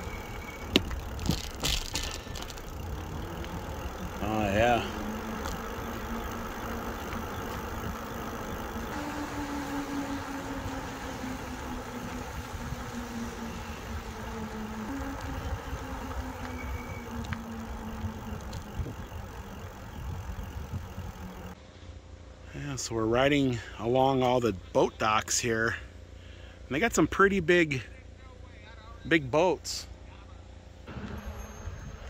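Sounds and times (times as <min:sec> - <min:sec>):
electric bike motor hum: 0:00.0 - 0:21.6, 0:30.9 - 0:32.0
wind rumbling on microphone: 0:04.9 - 0:21.6.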